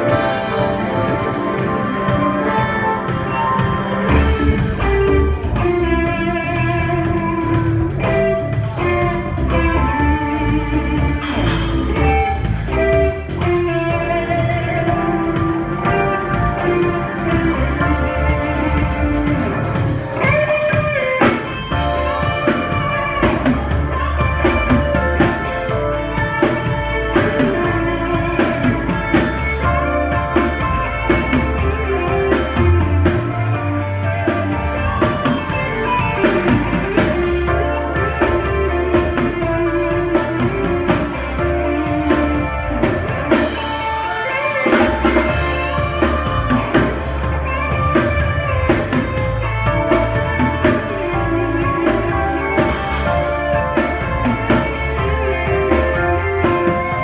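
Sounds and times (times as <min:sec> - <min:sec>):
drum beat: 0:00.0 - 0:33.3
electric guitar: 0:00.0 - 0:57.0
keyboards: 0:00.0 - 0:57.0
low bass notes: 0:00.0 - 0:57.0.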